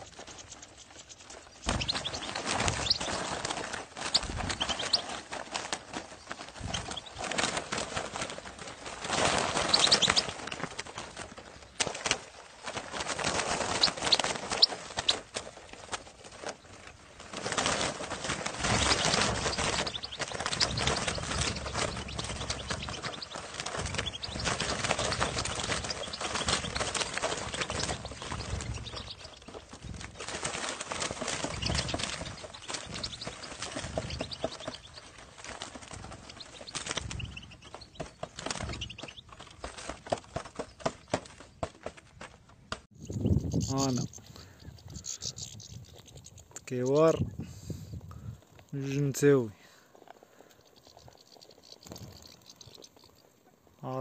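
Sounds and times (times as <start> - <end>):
birds' wings fluttering: 0.0 - 54.0
high bird chirps: 0.4 - 3.4, 4.0 - 5.2, 9.6 - 10.3, 18.7 - 29.6, 42.9 - 47.4, 50.5 - 53.3.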